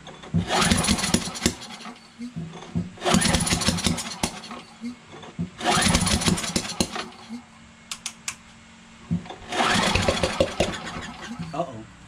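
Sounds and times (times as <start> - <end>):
recoil starter cranking engine: 0.1 - 4.8, 5.5 - 7.3, 9.2 - 11.7.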